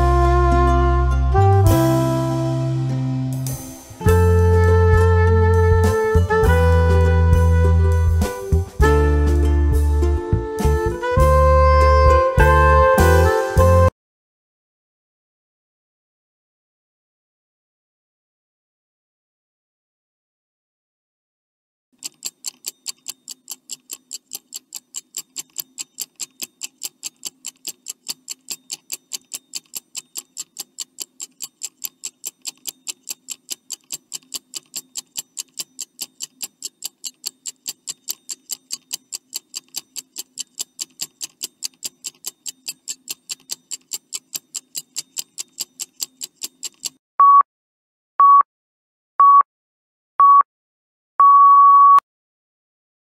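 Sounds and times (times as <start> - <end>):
clock ticking: 22.0 - 47.0.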